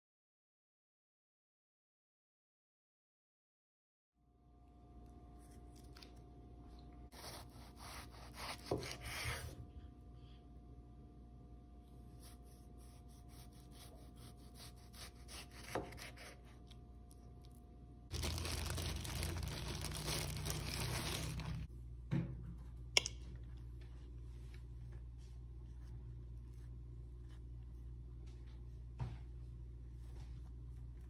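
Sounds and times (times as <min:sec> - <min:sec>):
plastic bag crinkling: 0:18.1 - 0:21.7.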